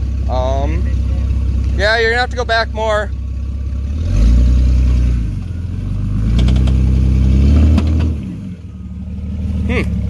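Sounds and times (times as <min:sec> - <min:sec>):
engine revving hard: 0:03.8 - 0:08.6.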